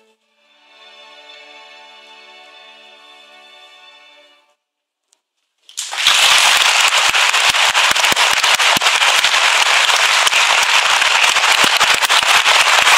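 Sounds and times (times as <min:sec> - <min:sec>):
audience applauding: 0:05.7 - 0:12.9.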